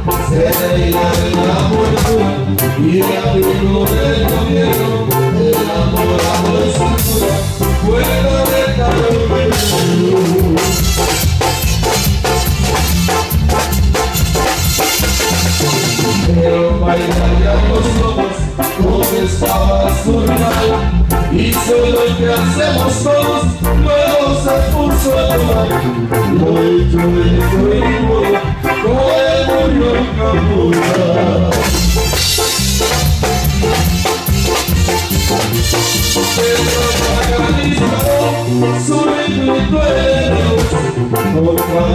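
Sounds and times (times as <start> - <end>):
live band playing dance music: 0.0 - 41.9
steady bass: 0.0 - 41.9
wavering melodic lead: 0.0 - 41.9
drum beat: 30.8 - 38.3.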